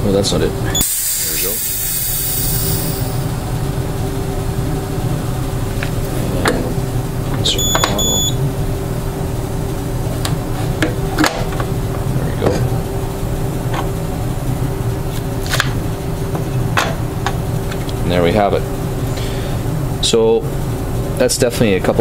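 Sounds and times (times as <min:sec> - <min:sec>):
machine humming: 0:00.0 - 0:21.2
short electronic beep: 0:07.6 - 0:08.4.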